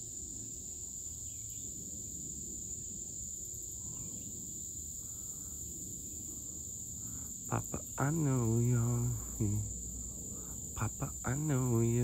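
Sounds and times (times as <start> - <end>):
high-pitched insect chorus: 0.0 - 12.0
low background rumble: 4.3 - 12.0.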